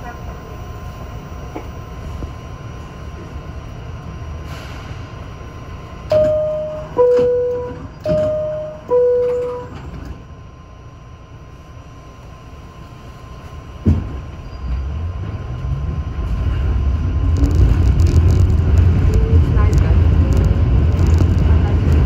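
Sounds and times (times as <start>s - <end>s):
low train hum: 0.0s - 22.0s
subway door-closing chime: 6.0s - 10.3s.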